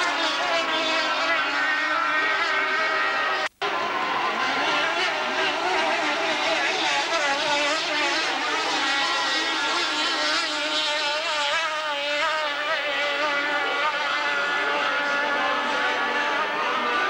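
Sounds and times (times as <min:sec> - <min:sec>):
powerboat engine running flat out: 0:00.0 - 0:17.0.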